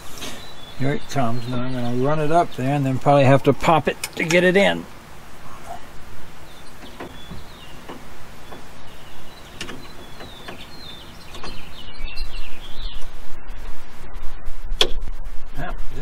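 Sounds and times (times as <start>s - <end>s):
low rumble: 4.9s - 16.0s.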